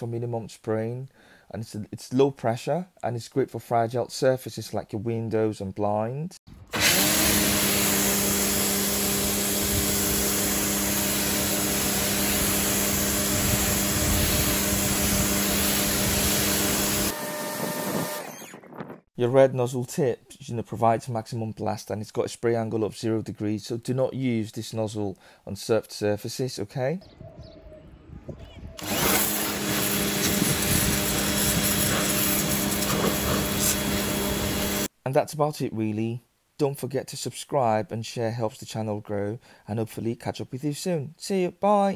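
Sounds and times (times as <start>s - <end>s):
pressure washer pump humming: 6.7s - 18.6s, 28.8s - 34.9s
water jet hissing on car: 30.2s - 34.9s.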